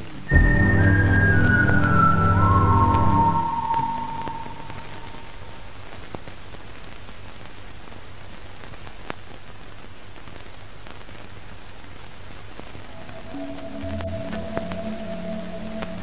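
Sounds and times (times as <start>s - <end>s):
steady hiss: 0.0s - 16.0s
low hum: 0.2s - 5.6s, 12.8s - 16.0s.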